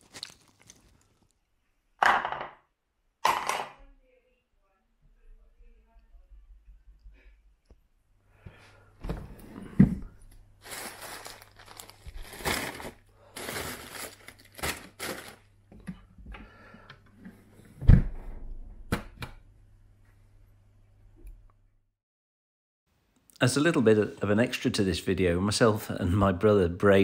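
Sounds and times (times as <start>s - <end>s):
plastic and foil bags crinkling: 0.0s - 1.3s, 10.6s - 15.5s.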